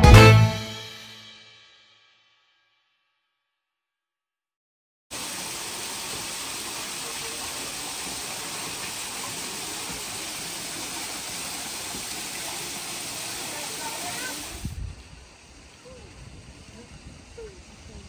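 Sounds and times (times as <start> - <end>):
water splashing over boulders: 5.2 - 14.8.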